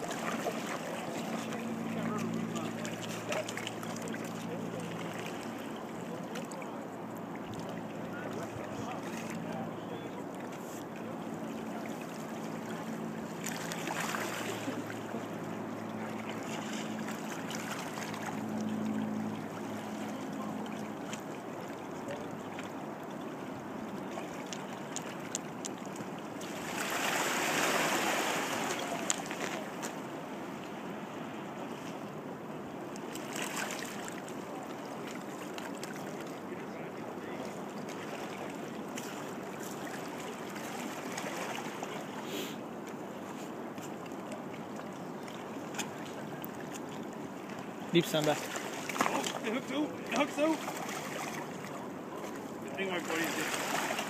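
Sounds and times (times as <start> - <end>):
river water rushing over rocks: 26.2 - 30.3, 44.4 - 54.0.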